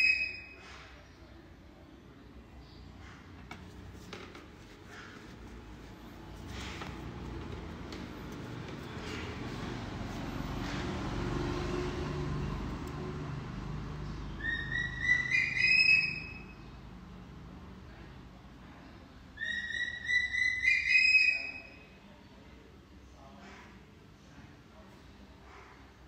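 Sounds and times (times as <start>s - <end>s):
infant monkey shrill calls: 0.0s - 0.6s, 14.4s - 16.6s, 19.4s - 22.0s.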